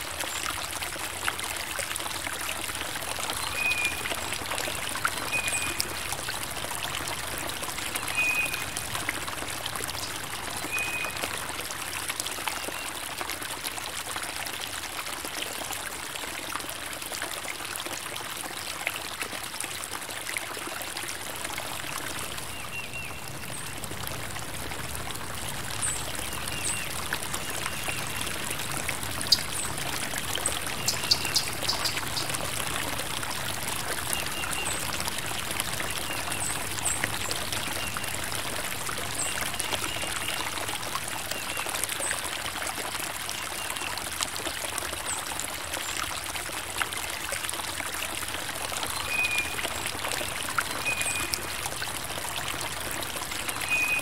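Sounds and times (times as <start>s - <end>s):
stream running: 0.0s - 54.0s
small birds chirping: 30.8s - 32.3s.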